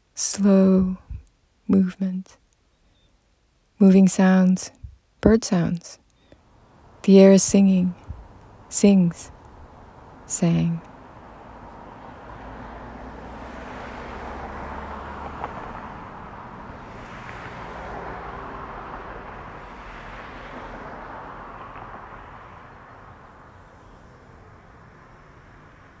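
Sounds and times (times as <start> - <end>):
passing road traffic: 6.4 - 26.0.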